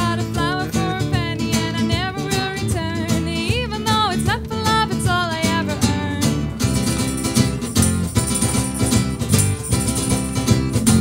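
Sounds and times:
woman singing: 0.0s - 6.4s
guitar accompaniment: 0.0s - 11.0s.

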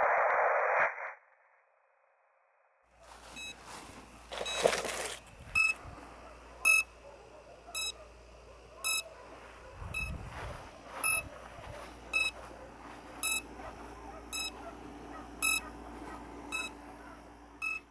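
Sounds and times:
short high electronic beeps: 11.0s - 11.2s.

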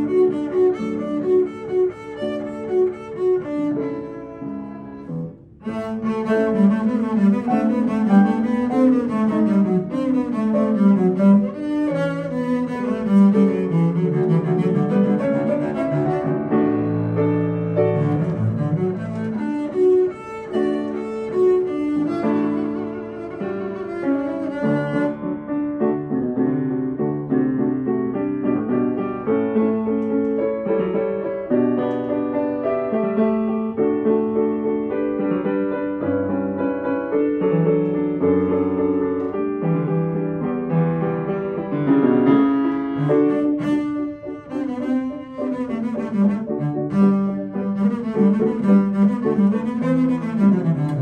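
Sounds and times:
bowed double bass: 0.0s - 26.2s, 42.3s - 51.0s
grand piano: 0.0s - 51.0s.

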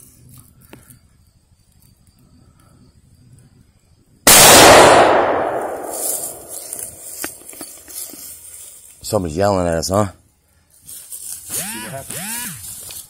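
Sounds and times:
rifle shot echoing: 4.3s - 7.0s.

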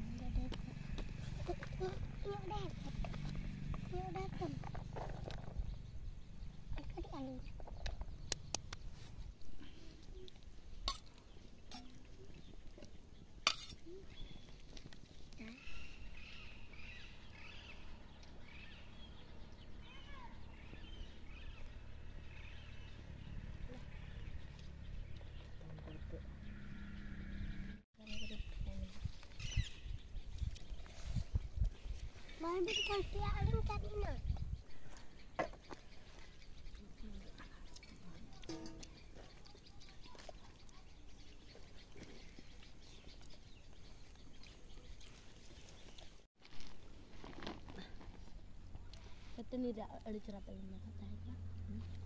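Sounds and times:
faint outdoor background noise: 0.0s - 52.0s
small birds chirping: 0.0s - 52.0s.

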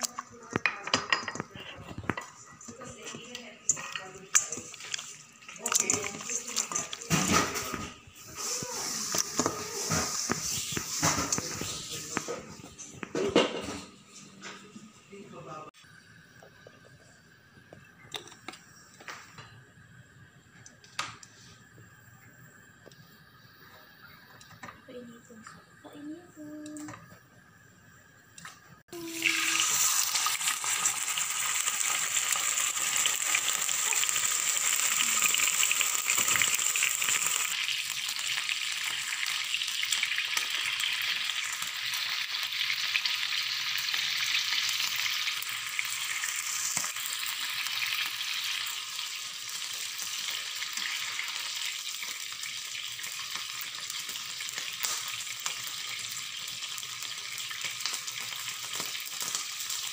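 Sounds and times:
meat sizzling in hot oil: 3.0s - 12.4s, 28.5s - 59.9s.

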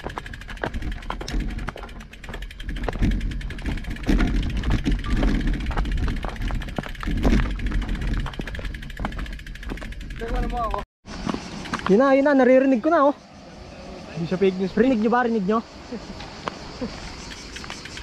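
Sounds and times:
wind buffeting microphone: 0.0s - 11.9s
bike clattering over gravel: 0.0s - 12.2s.

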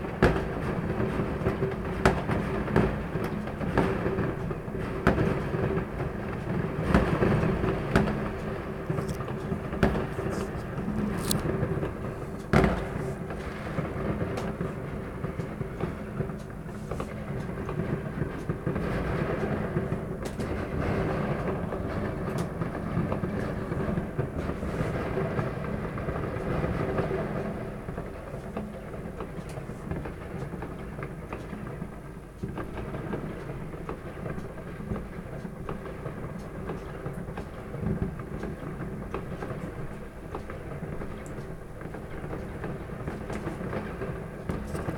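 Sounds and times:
faint firework cracks and pops: 0.0s - 44.9s
loud firework bang: 12.5s - 13.9s.

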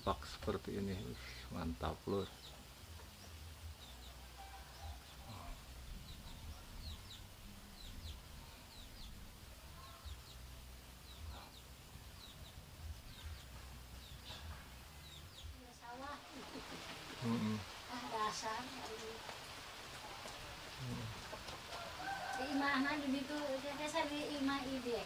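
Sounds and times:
small birds chirping: 0.0s - 25.0s
faint chicken clucks: 3.8s - 15.6s.

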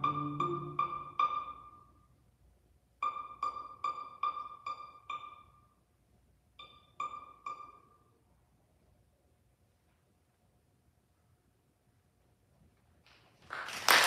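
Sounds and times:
string quartet pizzicato plucks: 0.0s - 1.7s, 3.0s - 5.4s.

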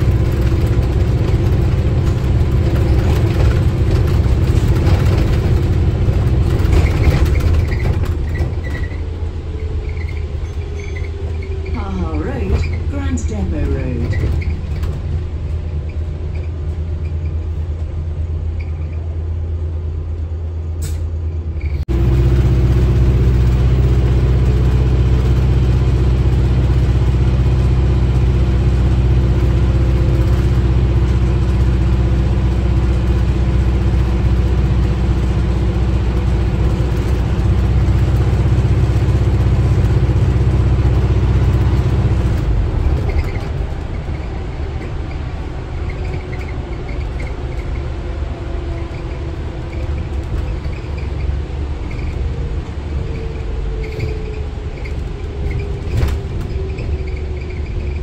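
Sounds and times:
bus diesel engine drone: 0.0s - 58.0s.

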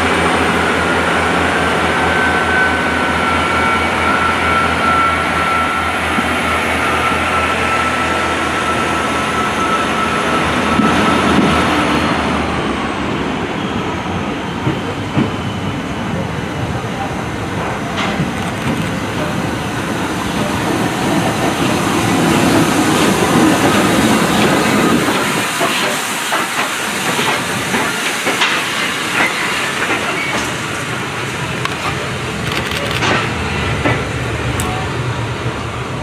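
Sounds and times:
steam train passing: 0.0s - 36.0s
steam hissing: 21.6s - 31.3s.

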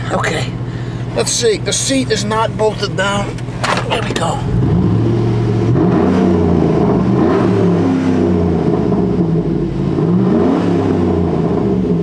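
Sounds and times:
truck engine revving: 3.0s - 12.0s.

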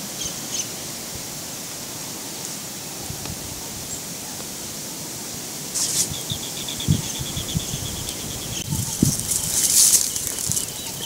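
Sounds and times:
footsteps crunching through dry grass: 5.7s - 6.2s, 8.6s - 11.0s.

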